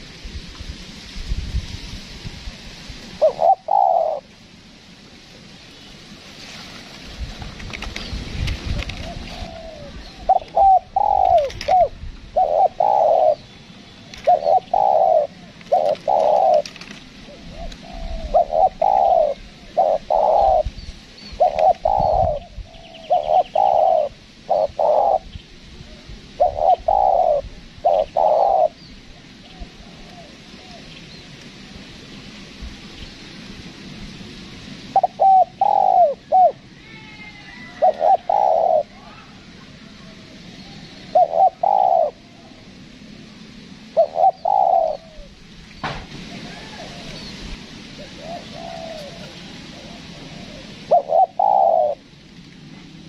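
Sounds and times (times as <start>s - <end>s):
dove cooing: 3.1s - 4.3s, 8.7s - 30.9s, 34.9s - 42.8s, 43.8s - 45.4s, 46.2s - 53.0s.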